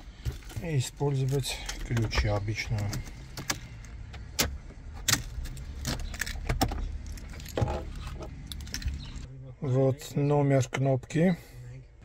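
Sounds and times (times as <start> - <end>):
car keys jangling: 1.2 - 9.2.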